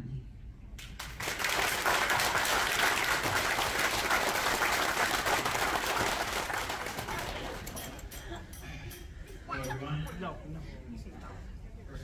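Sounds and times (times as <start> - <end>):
guests applauding: 0.8 - 7.8.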